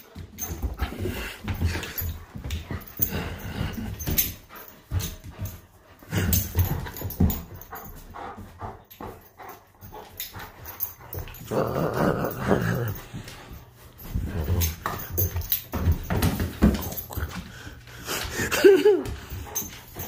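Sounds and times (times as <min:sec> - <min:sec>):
dog growling vocal noises: 0:11.4 - 0:13.2.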